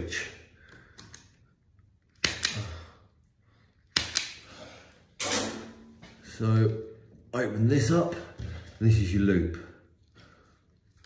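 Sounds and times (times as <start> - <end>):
wire stripper clicks: 2.2 - 2.6, 3.9 - 4.4.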